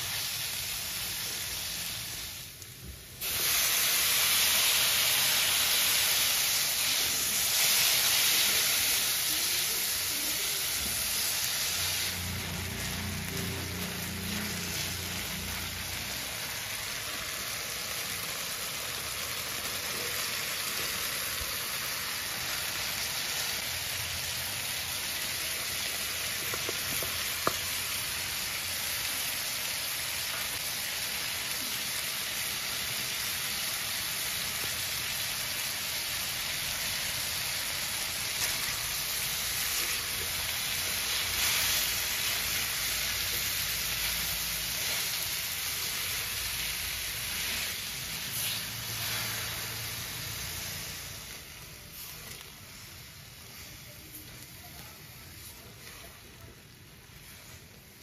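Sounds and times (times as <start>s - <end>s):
vegetables sizzling in oil: 0.0s - 58.0s.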